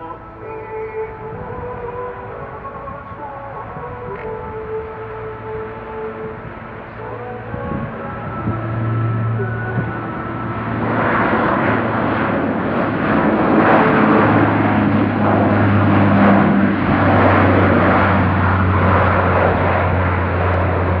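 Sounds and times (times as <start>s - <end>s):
jet engines roaring: 0.0s - 21.0s.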